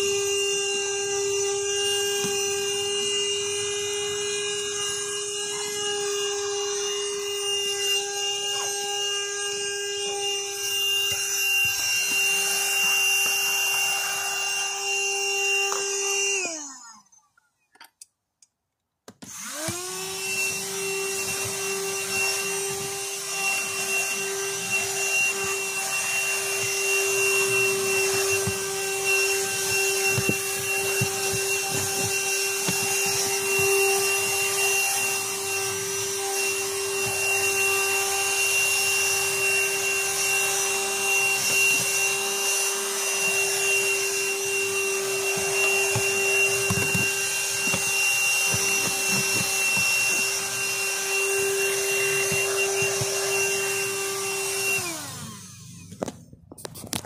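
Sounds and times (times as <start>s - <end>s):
handheld vacuum motor whining: 0.0s - 17.4s, 19.1s - 57.0s.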